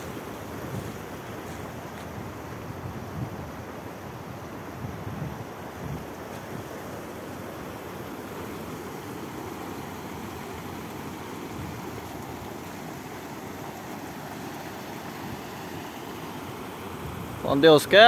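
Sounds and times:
water pouring over spillway: 8.1 - 18.0.

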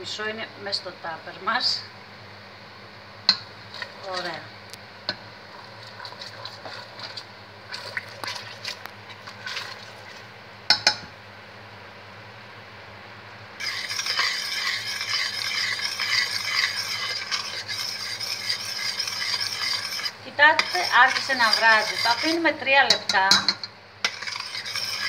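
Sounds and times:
utensil scraping around pot: 3.7 - 4.5, 5.5 - 9.9, 13.6 - 25.0.

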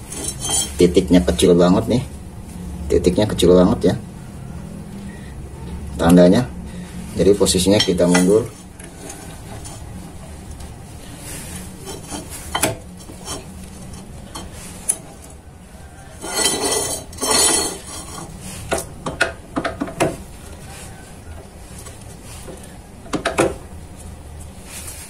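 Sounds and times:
steel tube clinking against vice: 0.0 - 0.8, 7.8 - 9.8, 11.8 - 15.3, 16.1 - 20.0
steady low hum: 0.0 - 25.0.

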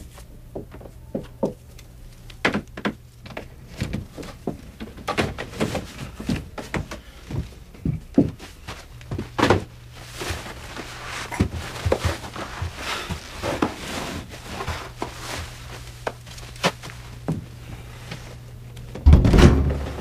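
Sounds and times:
low steady hum: 0.0 - 20.0
scuffing on carpet: 5.7 - 18.5.

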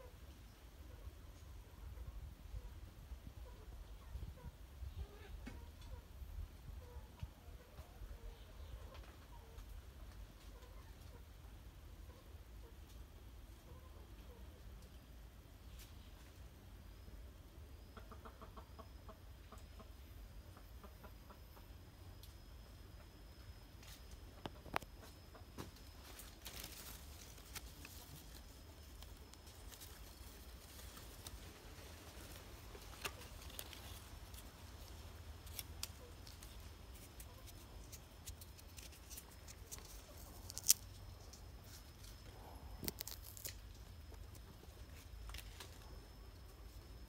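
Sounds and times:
faint steady high tone: 13.6 - 47.0
hands rustling fruit and leaves: 23.9 - 46.1.

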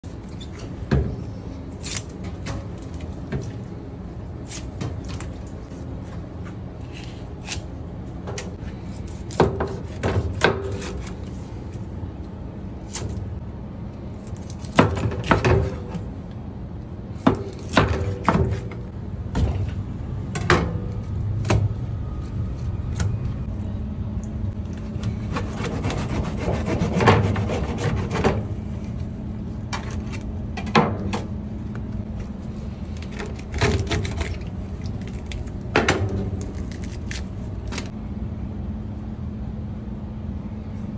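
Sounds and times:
knife sawing through fish: 25.3 - 28.2.

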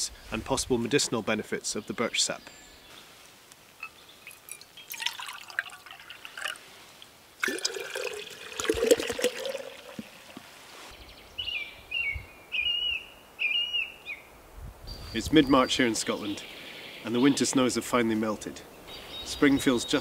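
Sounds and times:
liquid pouring into glass jar: 3.8 - 6.7, 7.4 - 10.6
bird calling: 11.0 - 14.3.

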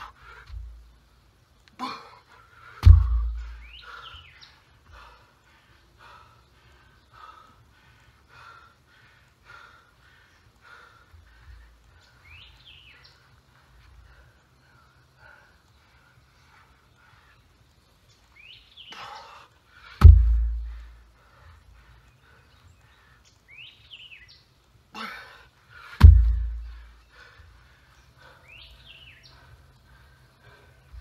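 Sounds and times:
heavy stone thudding on ground: 2.8 - 3.5, 20.0 - 20.7, 26.0 - 26.8
bird chirping: 2.9 - 7.7, 9.9 - 24.8, 26.0 - 31.0.

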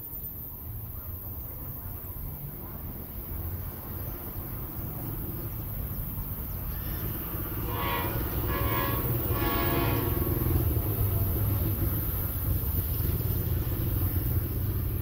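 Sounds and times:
train horn blasts: 7.5 - 10.7.

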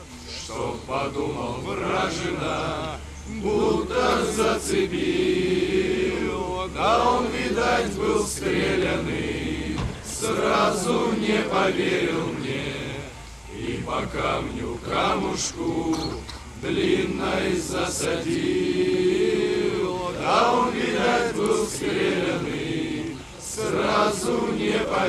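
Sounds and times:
low steady hum: 0.0 - 25.0
slow chanting voices: 0.0 - 25.0.

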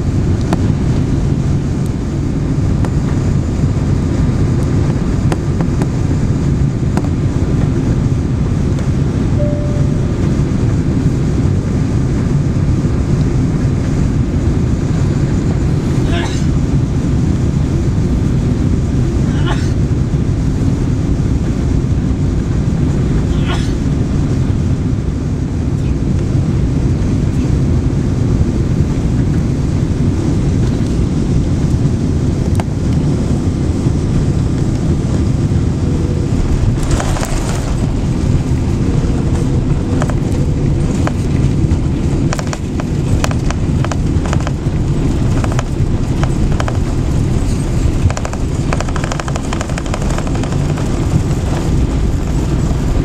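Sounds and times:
jet engine and airflow rumble: 0.0 - 53.0
cabin rattling and clicking: 42.2 - 53.0.

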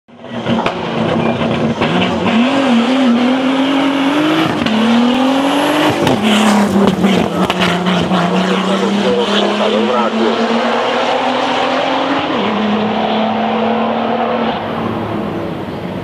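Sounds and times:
car engine revving: 0.1 - 16.0.

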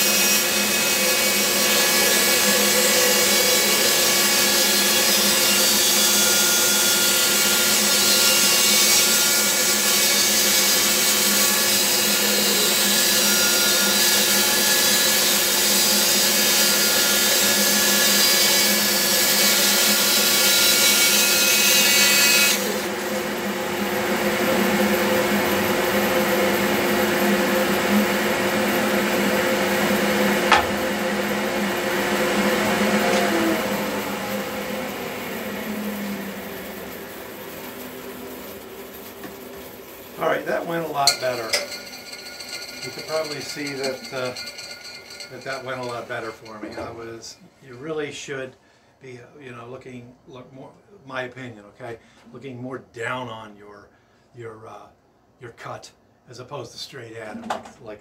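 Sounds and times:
bandsaw motor hum: 18.8 - 46.9
knock: 30.5 - 30.8.

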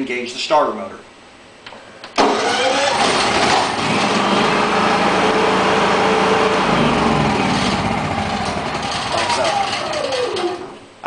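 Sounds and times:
generator electric starter: 2.2 - 10.9
generator engine running: 2.2 - 10.9.

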